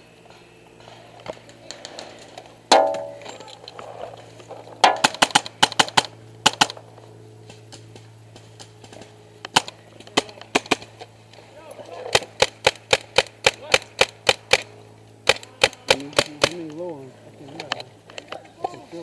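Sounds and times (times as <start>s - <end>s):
paintballs hitting metal container: 2.7s - 3.5s, 4.8s - 6.6s.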